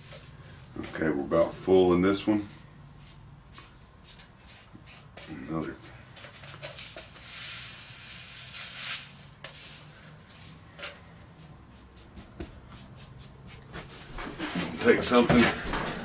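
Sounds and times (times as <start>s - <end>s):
sand pouring into metal tube: 6.8s - 10.5s.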